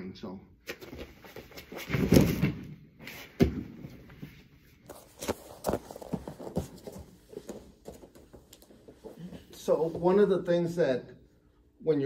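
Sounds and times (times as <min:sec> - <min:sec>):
bare feet thumping and shuffling: 0:00.7 - 0:10.3
body thudding on mat: 0:01.8 - 0:02.7.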